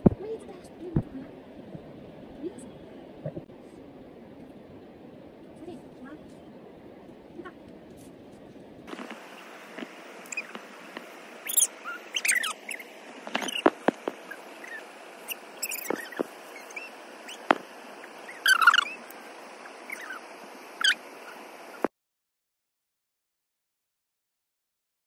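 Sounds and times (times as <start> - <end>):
leaves and branches rustling: 5.4 - 21.9.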